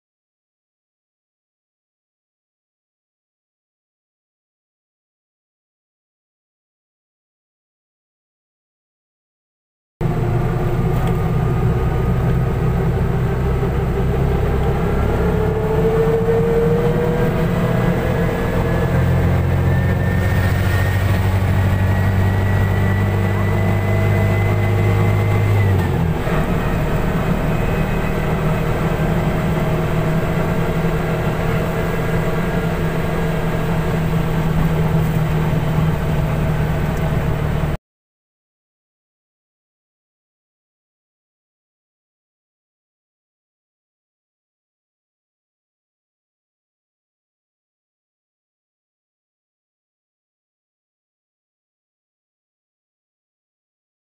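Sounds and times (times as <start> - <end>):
car engine running: 10.0 - 37.8.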